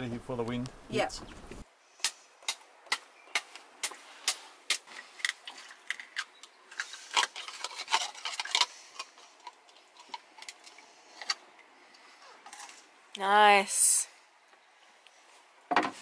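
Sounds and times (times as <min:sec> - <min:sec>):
knife scraping a shell: 0:04.2 - 0:11.4.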